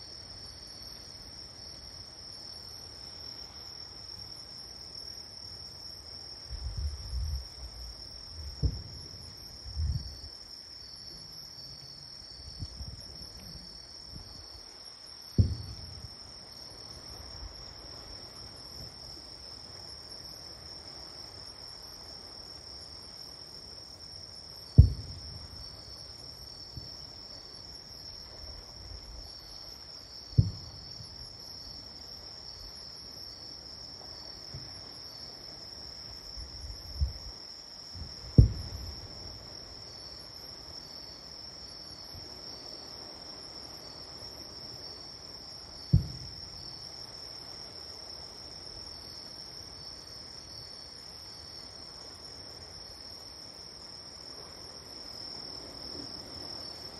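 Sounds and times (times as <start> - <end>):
distant fireworks booming: 8.4 - 9.2, 15.3 - 16.2, 24.8 - 25.9, 30.3 - 31.2, 38.0 - 39.3, 45.9 - 46.6.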